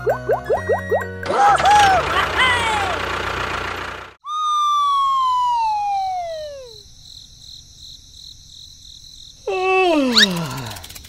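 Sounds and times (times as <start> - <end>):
downward gliding whistle: 4.3 - 6.8
crickets chirping: 4.8 - 11.0.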